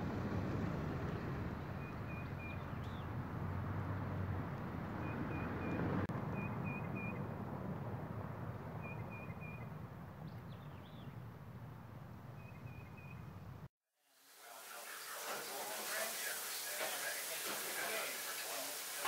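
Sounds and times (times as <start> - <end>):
low outdoor rumble: 0.0 - 13.7
bird calling: 1.8 - 3.1, 5.0 - 7.2, 8.8 - 11.2, 12.4 - 13.4.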